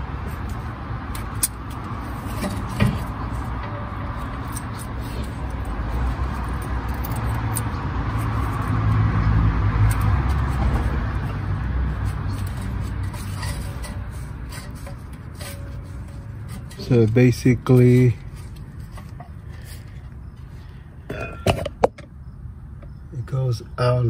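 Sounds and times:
vehicle passing by: 0.0s - 14.8s.

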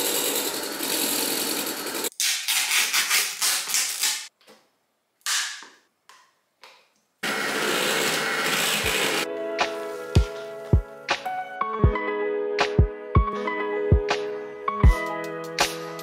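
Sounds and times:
electric hand mixer running: 0.0s - 2.1s, 7.2s - 9.3s
soft background music: 9.2s - 16.0s.

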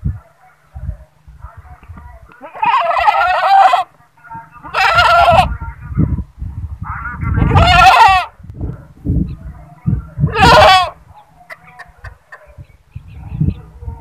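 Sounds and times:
goat bleating: 2.4s - 3.9s, 4.6s - 5.5s, 7.5s - 8.3s, 10.3s - 11.0s.

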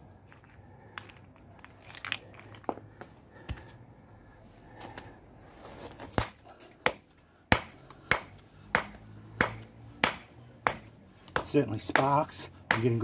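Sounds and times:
hammer striking rock: 6.2s - 13.0s.

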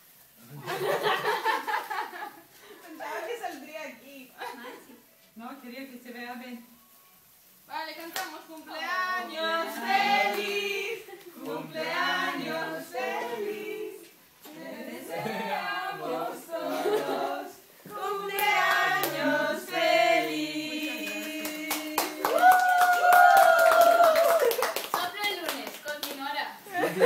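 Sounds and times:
group of people singing: 8.7s - 22.4s
people clapping: 9.7s - 12.6s, 17.9s - 26.5s.

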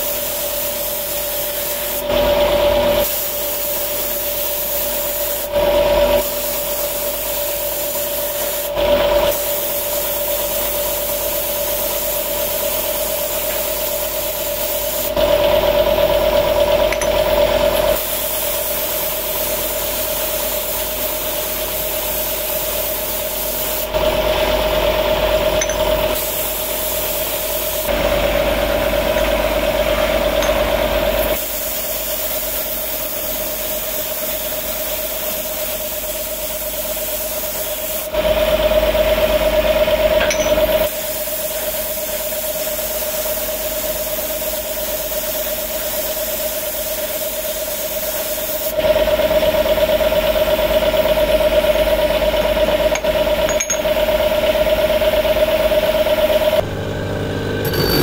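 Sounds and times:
spray gun hissing: 0.0s - 2.2s, 3.0s - 15.4s, 17.6s - 24.1s, 25.9s - 30.0s, 30.6s - 38.1s, 40.8s - 48.8s
machine hum: 23.9s - 31.4s, 56.0s - 58.0s.

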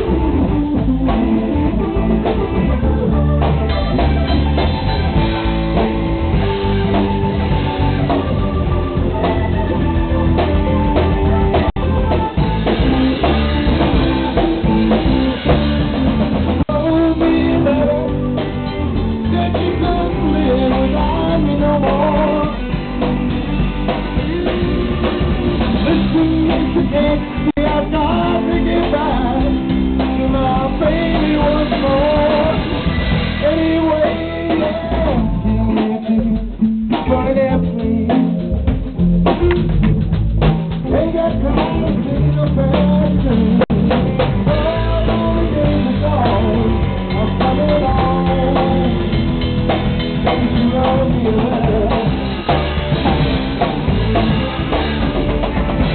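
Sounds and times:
drum kit: 0.0s - 55.9s
electric guitar: 0.0s - 55.9s
man singing: 16.5s - 38.8s, 40.8s - 54.5s.

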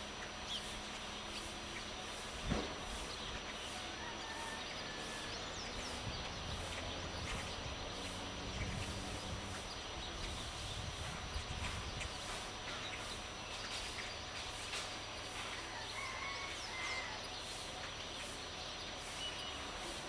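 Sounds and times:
outdoor background: 0.0s - 20.0s
faint bird chirps: 11.6s - 20.0s.

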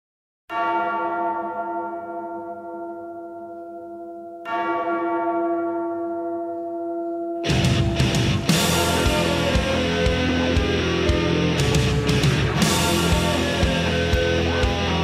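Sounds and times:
large bell tolling: 0.5s - 15.0s.

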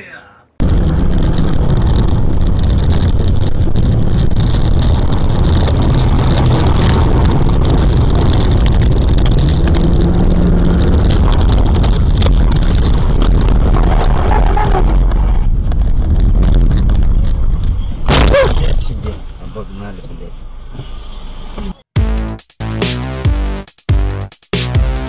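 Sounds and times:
car cabin rumbling: 0.6s - 19.4s.

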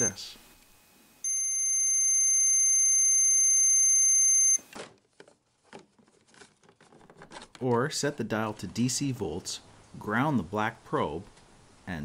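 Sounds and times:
multimeter continuity beep: 1.2s - 4.7s.

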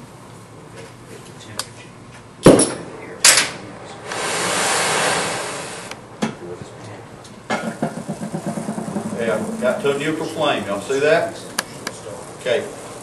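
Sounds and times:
torch lighting bangs: 2.4s - 6.0s
burning torch hissing: 3.7s - 6.1s, 8.6s - 13.0s.

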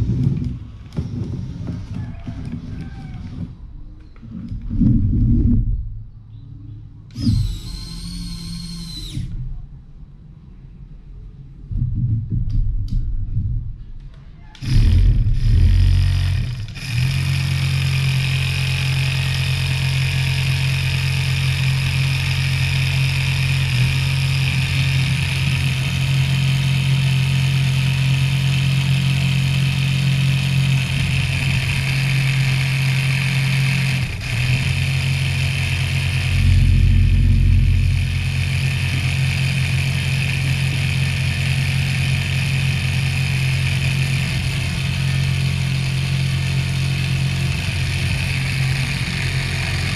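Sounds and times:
electric motor whining: 7.1s - 9.4s, 14.6s - 49.9s.

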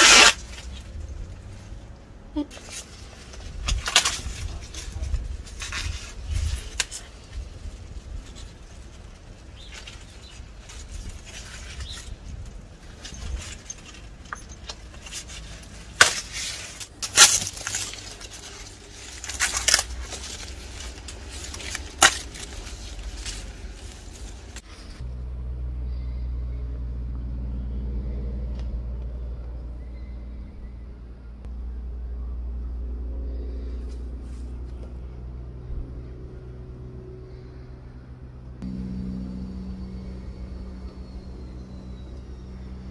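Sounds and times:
corn husks tearing: 0.0s - 1.7s, 2.4s - 25.0s
steady low rumble: 0.3s - 42.9s.

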